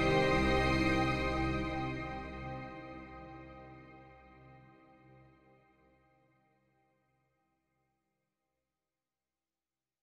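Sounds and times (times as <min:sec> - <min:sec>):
instrumental music with held notes: 0:00.0 - 0:04.6.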